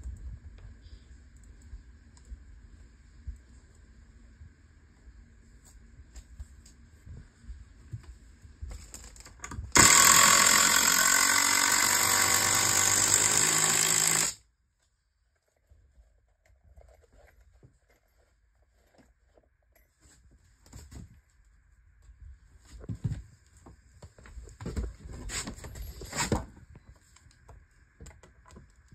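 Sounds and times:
impact driver driving screw: 9.8 - 14.4.

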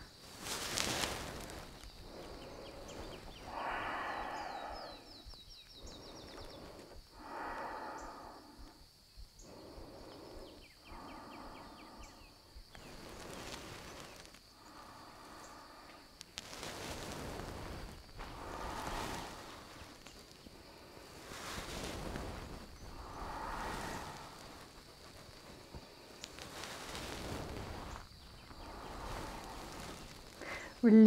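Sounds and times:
slow deep breathing: 0.0 - 30.8.

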